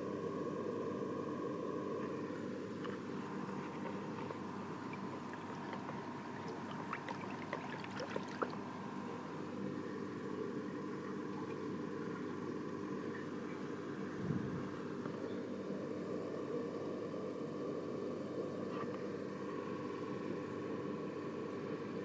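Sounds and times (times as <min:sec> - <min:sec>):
aquarium hum: 0:00.0 - 0:22.0
moving water: 0:02.8 - 0:09.1, 0:11.0 - 0:12.4.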